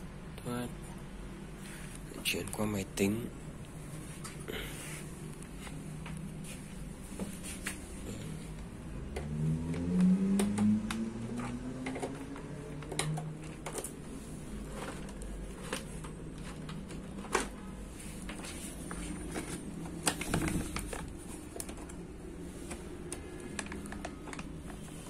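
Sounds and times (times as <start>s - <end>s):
plugs and cables clicking: 8.6s - 25.0s.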